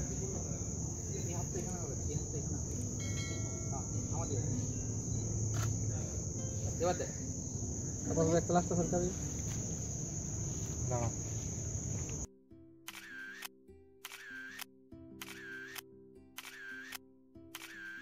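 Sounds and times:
crickets trilling: 0.0s - 12.3s.

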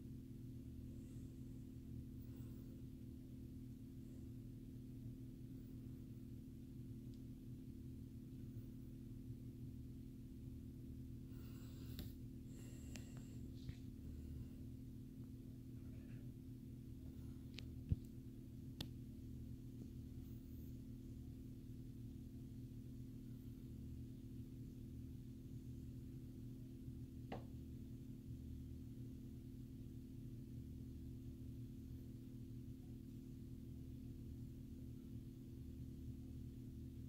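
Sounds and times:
faint fluctuating rumble: 0.0s - 37.0s
steady low hum: 0.0s - 37.0s.

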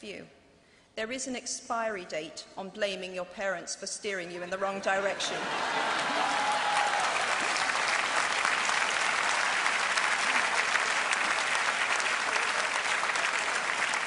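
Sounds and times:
crowd applauding: 5.3s - 14.0s.

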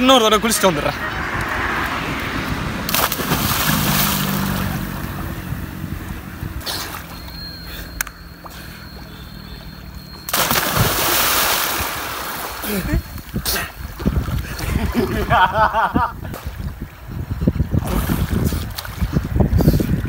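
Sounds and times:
diver splashing into water: 2.9s - 5.0s, 10.3s - 12.8s
water sloshing from swimming: 6.0s - 15.0s.

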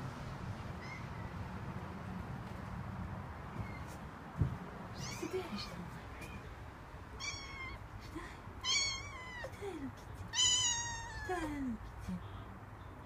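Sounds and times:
cat meowing: 0.8s - 1.3s, 5.0s - 6.4s, 7.2s - 7.8s, 8.6s - 9.5s, 10.3s - 11.3s.

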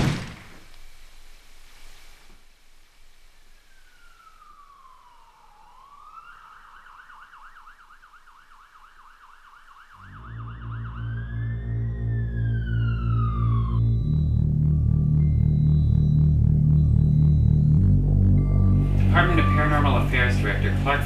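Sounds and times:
police car siren wailing and yelping: 3.6s - 17.8s
low pulsing music: 10.0s - 21.0s.

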